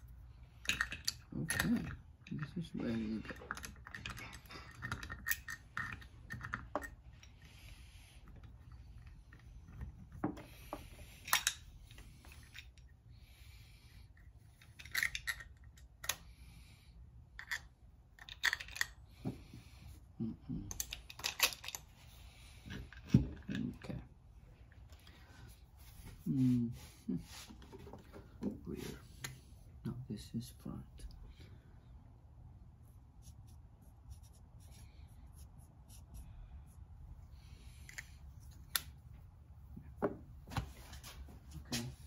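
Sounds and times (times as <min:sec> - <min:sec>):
metal parts clicking and clinking: 0:00.6 - 0:07.3, 0:14.6 - 0:16.2, 0:17.4 - 0:19.0, 0:20.7 - 0:21.9.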